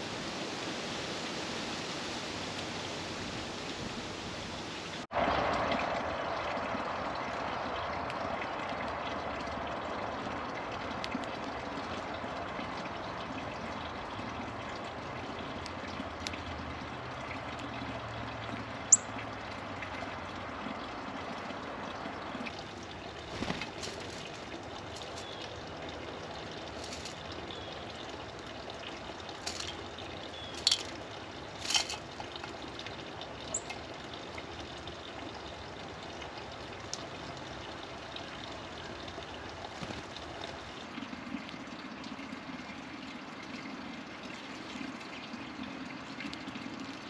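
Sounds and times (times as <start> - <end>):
water-like background hiss: 0.0 - 9.4, 20.2 - 47.0
small birds chirping: 22.3 - 25.6, 29.4 - 31.0.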